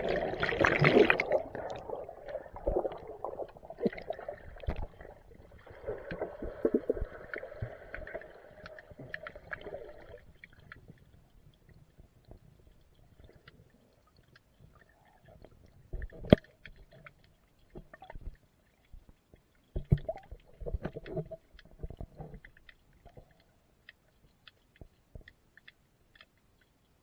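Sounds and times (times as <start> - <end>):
muffled underwater water movement: 0.0 - 27.0
faint clicks: 10.4 - 27.0
thumps and sloshing: 19.7 - 23.3.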